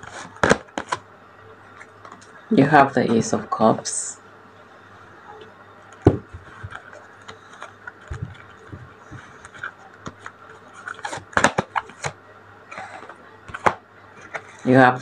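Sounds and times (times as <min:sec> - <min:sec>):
cards sliding rustle: 0:00.0 - 0:01.0, 0:05.9 - 0:14.7
cards clicking and tapping: 0:05.9 - 0:12.2, 0:12.8 - 0:14.6.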